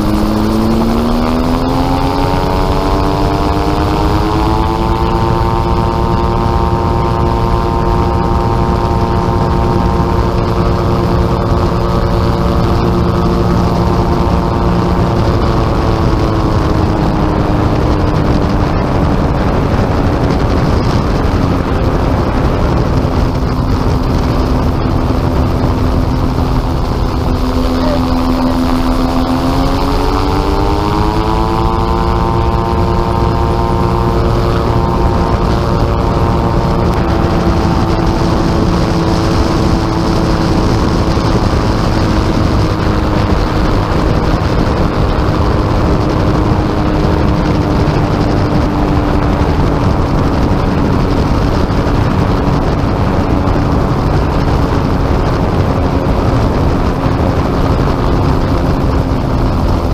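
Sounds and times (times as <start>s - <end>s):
gyrocopter engine and propeller: 0.0s - 59.9s
wind on microphone: 0.0s - 59.9s.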